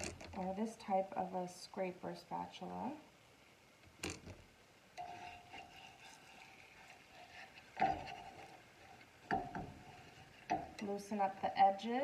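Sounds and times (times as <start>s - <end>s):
spatula scraping frying pan: 5.0s - 11.6s.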